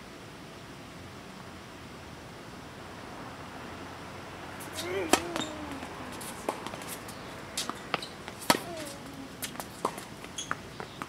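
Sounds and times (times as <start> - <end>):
tennis ball pops: 7.6 - 10.0.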